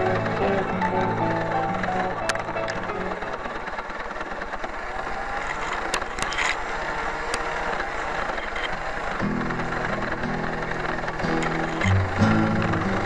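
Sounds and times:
background music: 0.0 - 4.0, 9.2 - 13.0
small electric motor rattling: 0.0 - 13.0.

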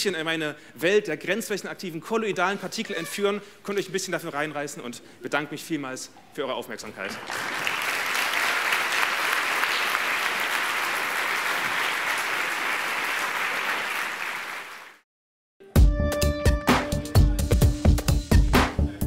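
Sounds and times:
audience applauding: 7.0 - 15.0
electronic music with heavy beat: 16.4 - 19.0.

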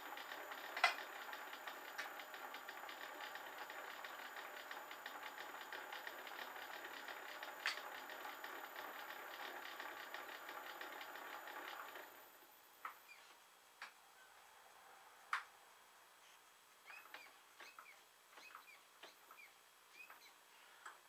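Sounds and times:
lathe rattling: 0.0 - 12.4.

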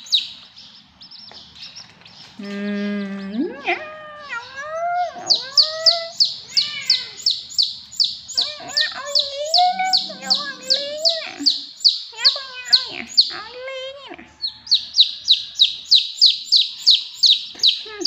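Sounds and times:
chicks peeping: 0.0 - 3.4, 4.4 - 13.4, 14.4 - 18.0
low calls sliding in pitch: 8.5 - 11.6.

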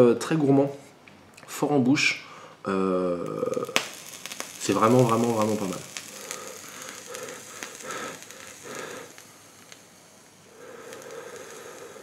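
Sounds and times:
breathy exhaling: 6.1 - 9.2, 10.5 - 12.0.

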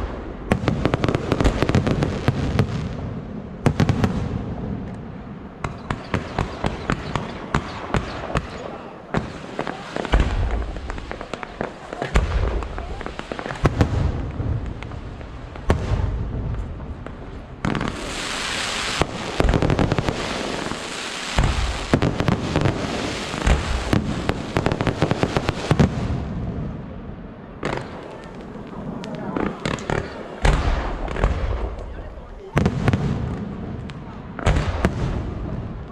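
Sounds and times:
fireworks booming and cracking: 0.0 - 35.9
fireworks crackling: 0.0 - 35.9.

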